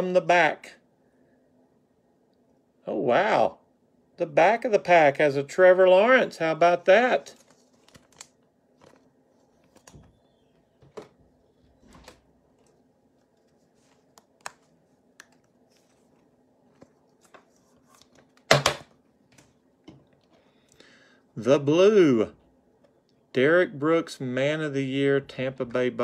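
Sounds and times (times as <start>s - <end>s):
plastic sleeve rustling: 6.8s - 18.5s.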